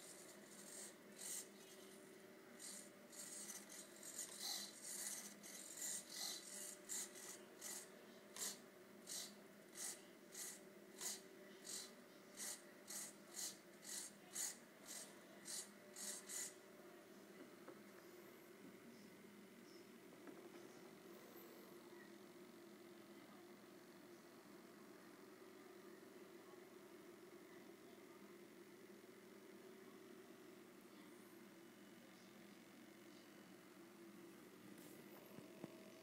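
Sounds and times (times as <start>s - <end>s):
servos buzzing in rasping bursts: 2.6s - 16.6s.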